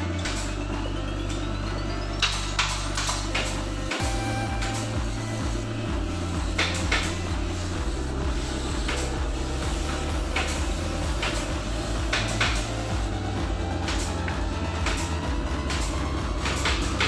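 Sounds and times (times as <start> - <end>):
background music with bass line: 0.0 - 17.0
spray gun hissing bursts: 4.0 - 13.0.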